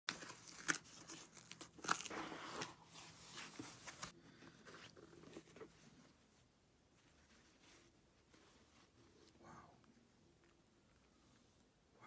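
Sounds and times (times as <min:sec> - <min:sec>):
cardboard box ripping: 0:00.1 - 0:02.8
cardboard rustling and handling: 0:00.1 - 0:09.3.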